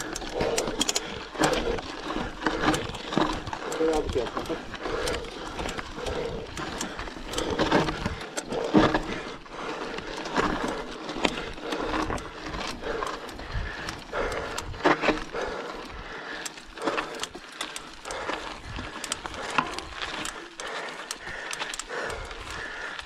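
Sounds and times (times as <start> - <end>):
bike knocks and rattles: 0.0 - 15.6.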